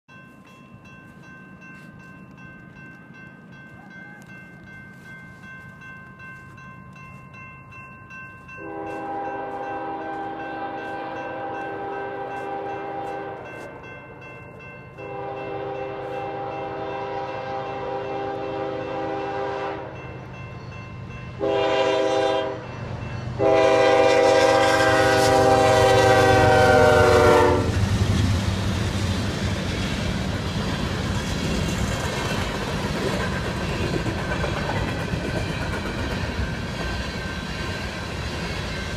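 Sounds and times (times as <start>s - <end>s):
railroad crossing bell ringing: 0.1s - 38.9s
train air horn blasts: 8.6s - 13.7s, 15.0s - 20.0s, 21.4s - 22.7s, 23.4s - 27.9s.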